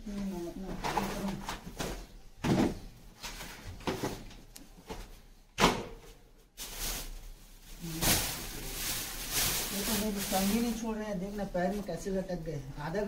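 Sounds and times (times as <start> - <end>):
plastic bag rustling: 6.0 - 12.6.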